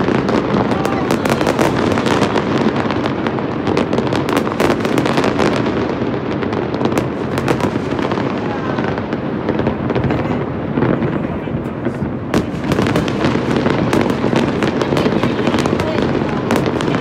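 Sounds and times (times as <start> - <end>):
fireworks cracking and banging: 0.0 - 17.0
continuous rumble: 6.4 - 17.0.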